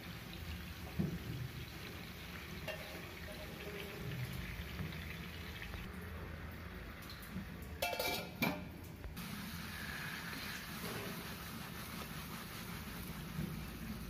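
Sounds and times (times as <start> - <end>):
metal lid clattering against pan: 2.7 - 3.0, 7.8 - 8.6.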